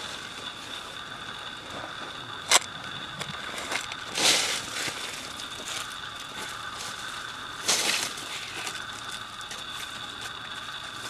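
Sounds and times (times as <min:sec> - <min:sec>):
high-pitched whine: 0:00.0 - 0:11.0
dry leaf litter crunching: 0:03.4 - 0:11.0.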